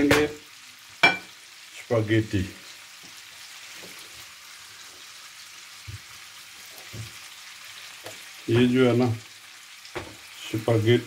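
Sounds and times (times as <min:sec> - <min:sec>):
shrimp sizzling in a pan: 0:00.0 - 0:11.0
spatula clacking on a plate: 0:01.0 - 0:01.3.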